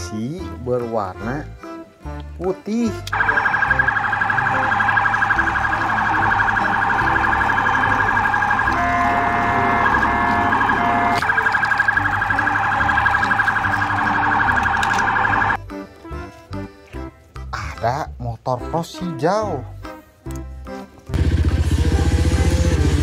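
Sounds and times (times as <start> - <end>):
police siren warbling: 3.1 - 15.6.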